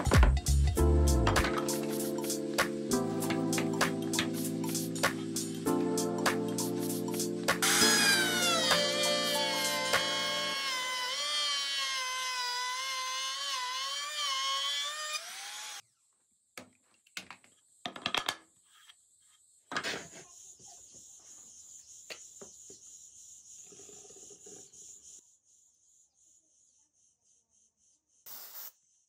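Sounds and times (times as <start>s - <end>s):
trim router whining: 7.6s - 15.8s.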